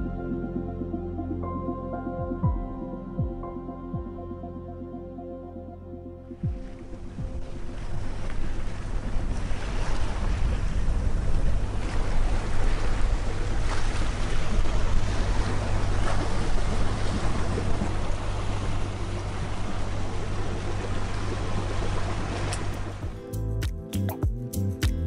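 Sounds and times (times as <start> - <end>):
boat engine drone: 2.8 - 23.2
wind on microphone: 6.4 - 23.2
water splashing along hull: 6.4 - 25.0.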